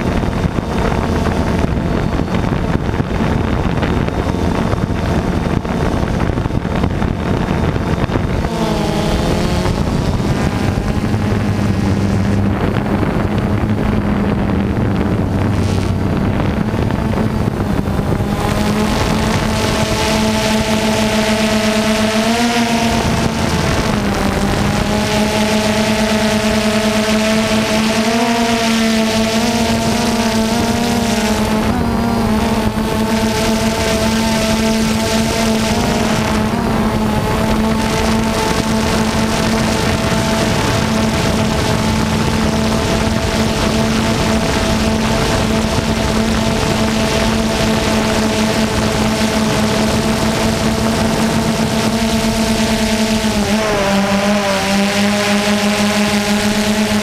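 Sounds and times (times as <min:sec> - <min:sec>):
drone propellers buzzing: 0:00.0 - 0:57.0
wind rush: 0:00.0 - 0:57.0.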